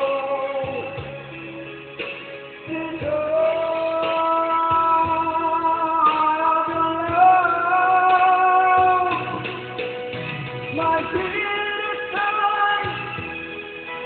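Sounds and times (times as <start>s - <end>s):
man singing into microphone: 0.0s - 1.3s, 2.6s - 9.6s, 10.7s - 13.4s
karaoke backing track: 0.0s - 14.0s.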